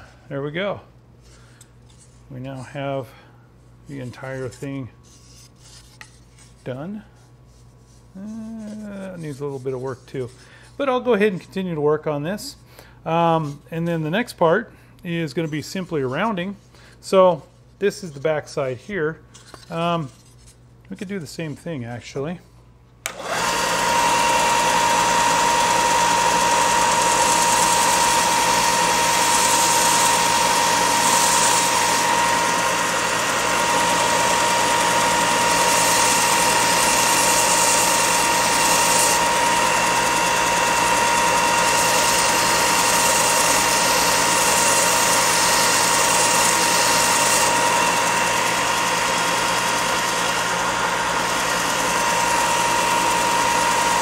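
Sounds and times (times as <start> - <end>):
belt sander motor whine: 23.1 - 54.0
wood sanding hiss: 23.9 - 50.4.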